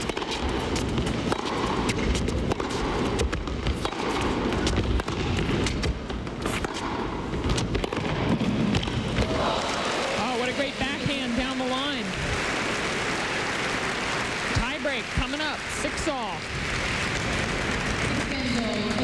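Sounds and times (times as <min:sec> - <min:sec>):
racket hitting tennis ball: 0:00.0 - 0:09.7
tennis ball bouncing: 0:00.0 - 0:09.7
arena crowd noise: 0:08.2 - 0:19.0.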